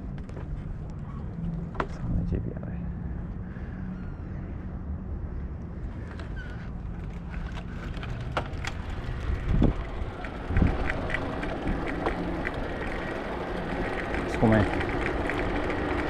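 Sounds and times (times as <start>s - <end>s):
bicycle rolling over paving stones: 6.0s - 16.0s
small rattling clicks: 6.0s - 16.0s
wind buffeting microphone: 7.6s - 16.0s.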